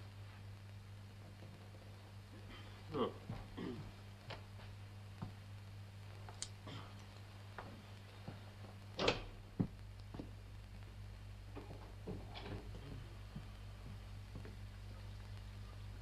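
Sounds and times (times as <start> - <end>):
low hum: 0.0 - 16.0
faint footsteps: 3.2 - 16.0.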